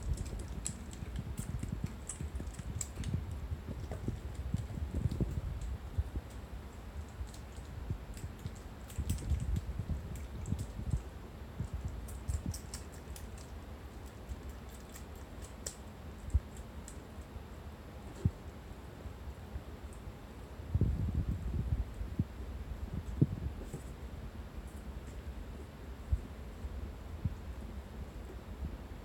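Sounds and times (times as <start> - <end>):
kitten claws scratching fabric: 0.0 - 17.0.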